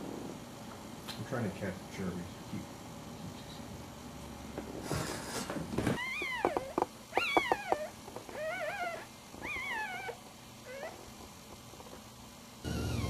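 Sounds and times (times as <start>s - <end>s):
puppy whimpering: 6.0s - 11.1s.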